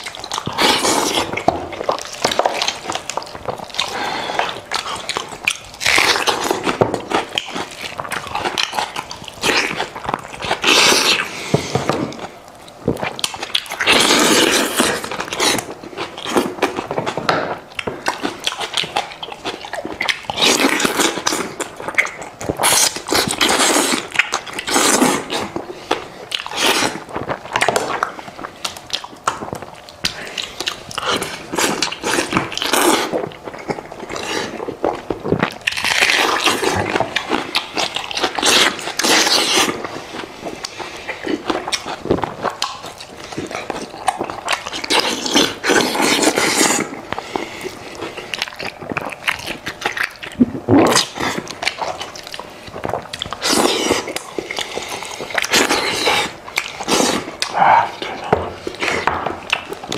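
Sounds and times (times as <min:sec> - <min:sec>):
chewing and biting: 0:00.0 - 0:59.9.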